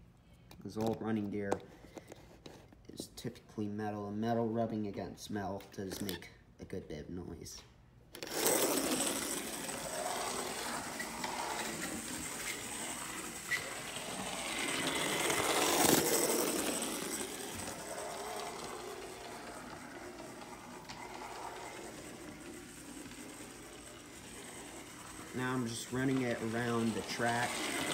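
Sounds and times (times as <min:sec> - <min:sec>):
model train motor whirring: 0:08.2 - 0:27.9.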